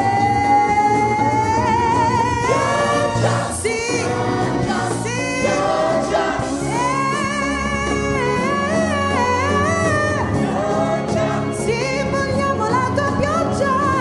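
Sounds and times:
female lead vocals with vibrato: 0.0s - 10.6s, 11.4s - 14.0s
gospel choir singing: 1.6s - 12.8s.

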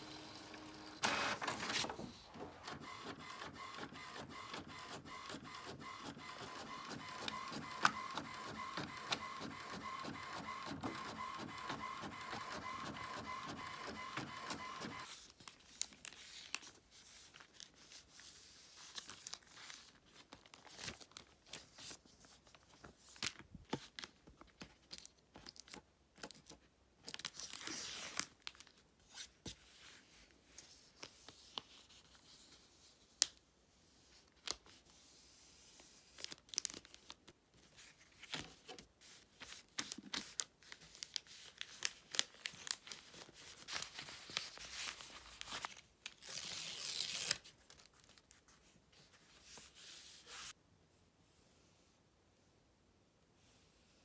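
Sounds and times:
paper rustling and creasing: 14.9s - 32.9s, 34.1s - 50.6s.

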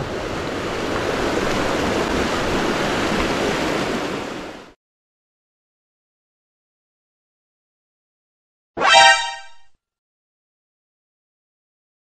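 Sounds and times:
mountain stream rushing: 0.0s - 4.8s.

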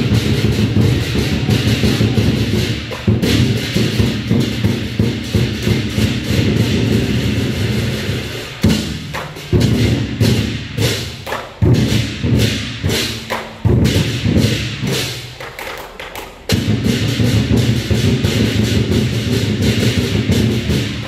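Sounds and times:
big drum beating: 0.0s - 15.4s, 16.4s - 21.0s
cymbals clashing: 0.0s - 15.4s, 16.4s - 21.0s.

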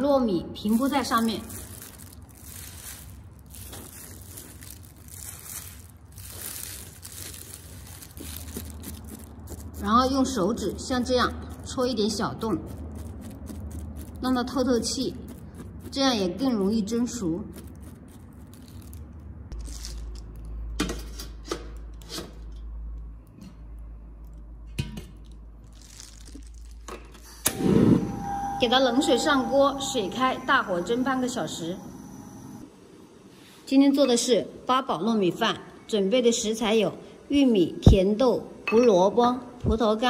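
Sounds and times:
plastic glove rustling and crinkling: 0.3s - 20.6s, 25.2s - 27.2s
low steady hum: 22.5s - 33.1s
steady low hum: 27.5s - 32.7s.

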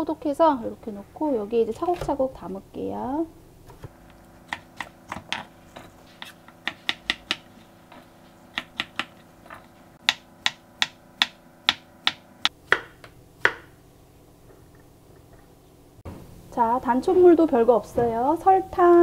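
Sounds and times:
knife chopping on wooden board: 3.7s - 13.8s.

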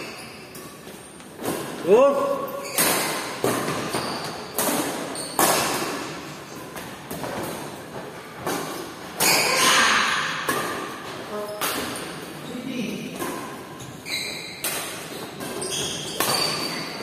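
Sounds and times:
racket hitting shuttlecock: 2.7s - 6.2s, 8.4s - 11.0s, 14.4s - 17.0s.

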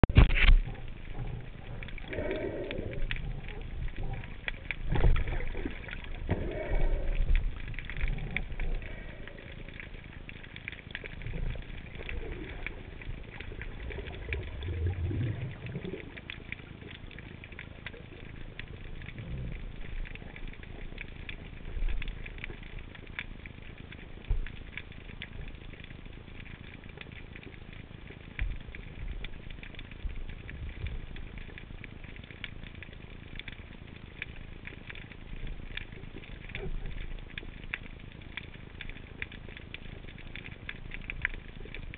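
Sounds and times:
low underwater thumps and rumbles: 0.0s - 17.3s, 18.0s - 25.7s
dense crackling of tiny clicks: 0.0s - 41.9s.

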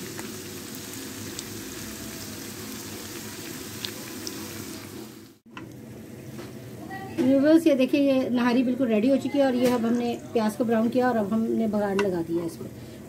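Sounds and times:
onions sizzling in oil: 0.0s - 5.5s.

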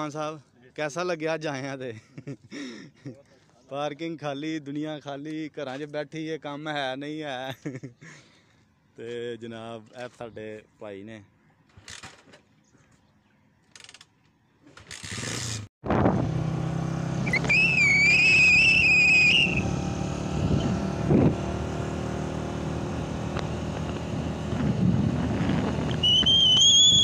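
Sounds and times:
motorcycle engine running: 16.2s - 27.0s
high wavering whistle: 17.2s - 19.7s, 26.0s - 27.0s.

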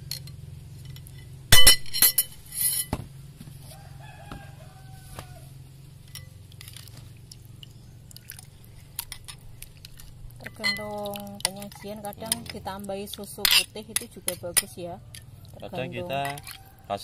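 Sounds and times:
distant rooster crowing: 3.6s - 5.8s, 14.4s - 17.0s
metal spoon clinking on glass bowl: 10.4s - 12.6s, 16.1s - 16.6s.

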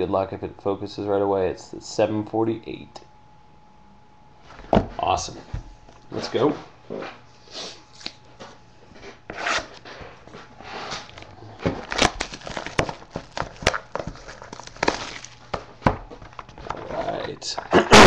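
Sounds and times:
cardboard box rustling and scraping: 9.0s - 15.4s.

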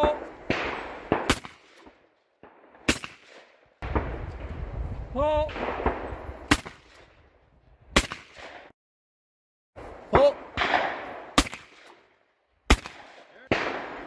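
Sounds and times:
shotgun shots: 0.0s - 4.2s, 5.4s - 7.1s, 8.0s - 8.7s, 10.0s - 12.1s, 12.7s - 14.0s.

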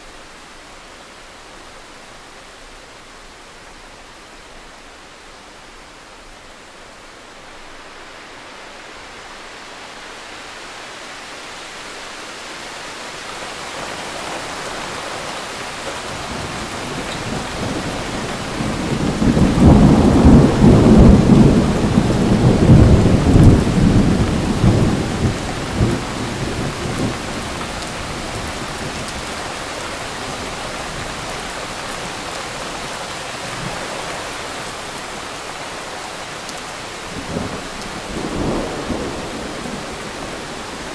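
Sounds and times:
steady rain: 0.0s - 40.9s
thunder rumbling: 16.0s - 31.0s.

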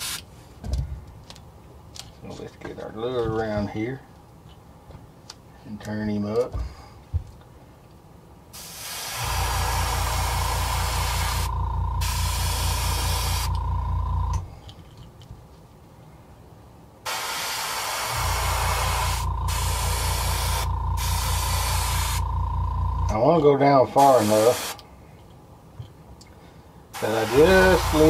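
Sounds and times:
airbrush spraying hiss: 8.6s - 13.6s, 17.1s - 22.2s, 24.0s - 24.8s, 27.0s - 28.0s
air compressor humming: 8.6s - 14.5s, 17.1s - 23.4s, 27.0s - 28.0s.

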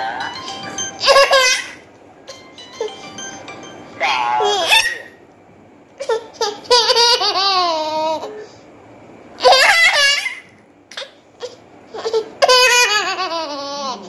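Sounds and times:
toddler girl giggling: 11.0s - 14.0s.

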